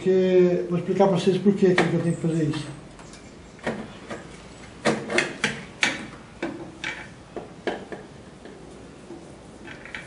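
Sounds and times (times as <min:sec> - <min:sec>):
light metallic clicks and knocks: 0:03.0 - 0:08.6.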